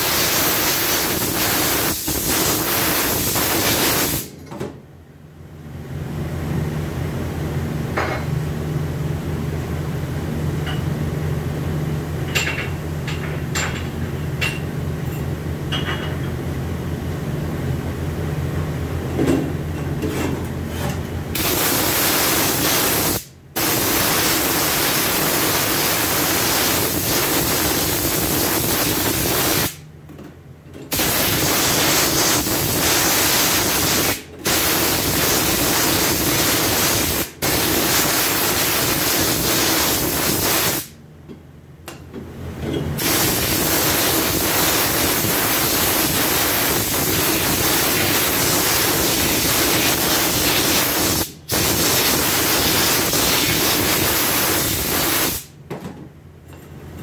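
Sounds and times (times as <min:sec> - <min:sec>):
spray gun hissing: 0:00.0 - 0:04.3, 0:21.4 - 0:29.8, 0:30.9 - 0:40.9, 0:43.0 - 0:55.5.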